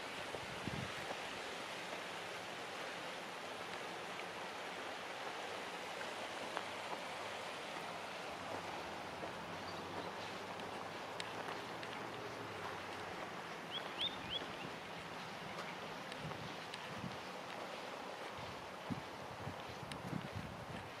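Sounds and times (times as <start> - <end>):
creek water rushing: 0.0 - 21.0
faint ticks: 9.2 - 21.0.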